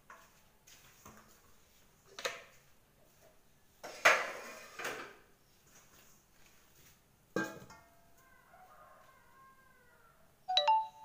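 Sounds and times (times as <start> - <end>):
metal kitchenware clattering: 7.4 - 7.9.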